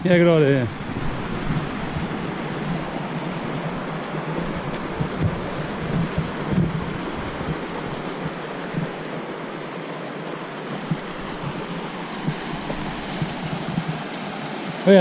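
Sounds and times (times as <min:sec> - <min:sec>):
mountain stream rushing: 0:00.0 - 0:15.0
soft low thumps: 0:00.6 - 0:09.3, 0:10.7 - 0:14.0.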